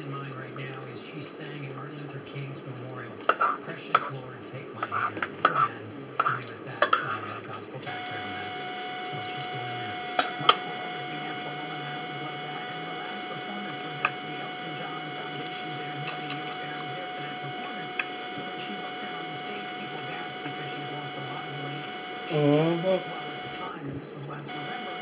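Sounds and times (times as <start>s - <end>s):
electrical hum and whine: 0.0s - 25.0s
short vocal sound: 22.3s - 23.1s.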